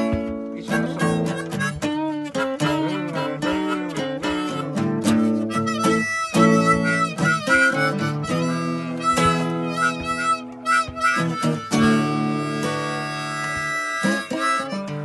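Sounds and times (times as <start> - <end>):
harmonica playing: 0.0 - 15.0
strummed acoustic guitar: 0.0 - 15.0.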